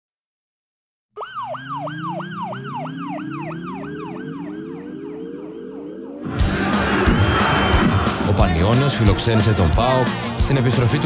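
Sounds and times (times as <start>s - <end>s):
rising lower tones: 1.2s - 8.2s
siren-like sweeping tone: 1.2s - 8.2s.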